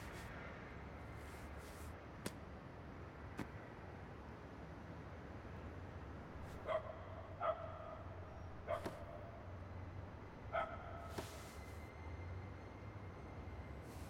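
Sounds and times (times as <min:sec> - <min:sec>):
dog barking: 0:06.5 - 0:09.4, 0:10.5 - 0:11.1.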